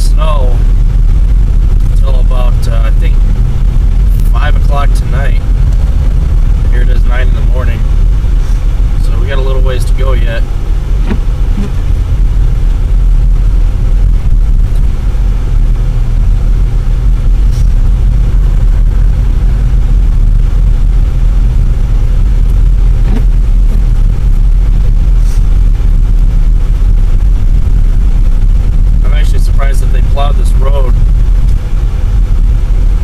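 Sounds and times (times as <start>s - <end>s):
car engine and tyres rumbling: 0.0s - 33.0s.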